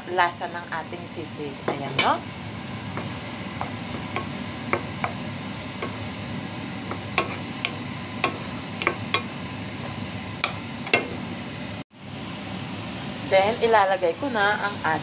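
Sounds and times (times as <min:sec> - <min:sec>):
onion sizzling in a frying pan: 0:00.0 - 0:15.0
wooden spoon knocking on pan: 0:02.9 - 0:06.1, 0:06.8 - 0:11.2.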